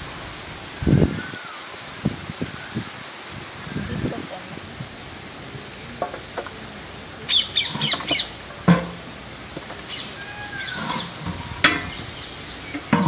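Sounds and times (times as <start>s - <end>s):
birds squawking high-pitched calls: 7.3s - 8.4s, 9.8s - 13.0s
sharp knocks: 7.8s - 9.8s, 10.8s - 12.1s
bird rising-and-falling call: 9.9s - 12.7s.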